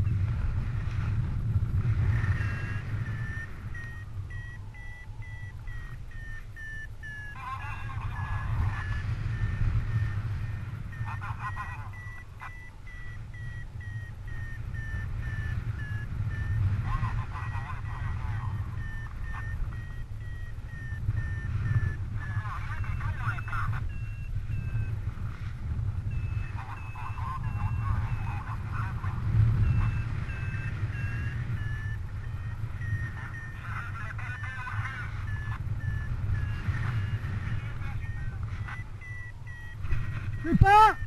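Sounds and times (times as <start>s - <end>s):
variometer beeping: 0.0s - 41.0s
wind rumble on microphone: 0.0s - 41.0s.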